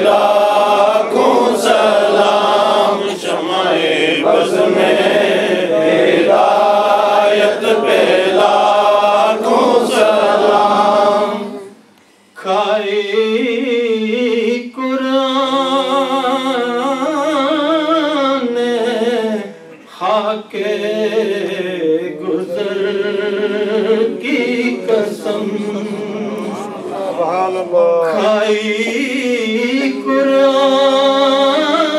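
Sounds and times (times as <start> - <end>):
man chanting into a microphone: 12.4 - 31.9.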